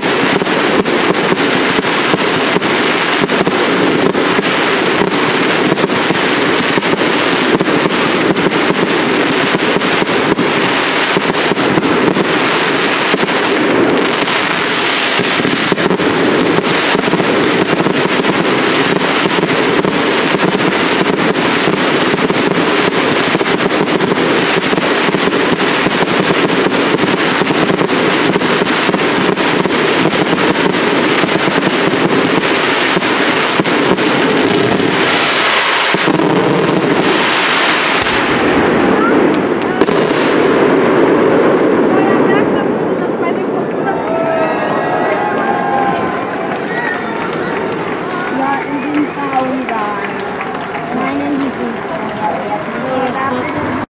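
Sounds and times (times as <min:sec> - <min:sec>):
fireworks crackling: 0:00.0 - 0:53.9.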